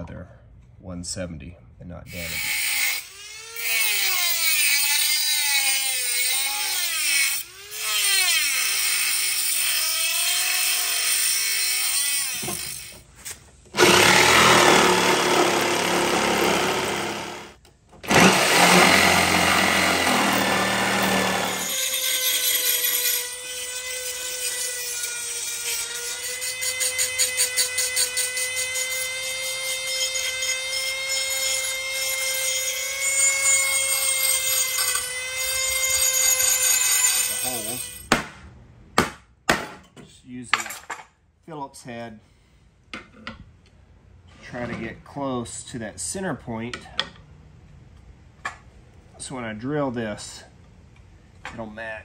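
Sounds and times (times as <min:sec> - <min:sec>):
jigsaw rasping through metal: 0:02.3 - 0:13.0, 0:13.8 - 0:38.1
rotary tool whining cutting metal: 0:02.3 - 0:13.1, 0:13.8 - 0:38.1.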